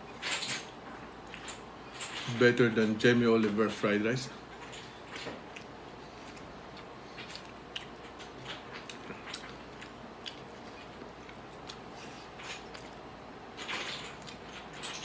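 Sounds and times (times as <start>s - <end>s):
man chewing food: 0.0s - 2.3s, 4.4s - 15.0s
small wet clicks and smacks: 4.6s - 15.0s.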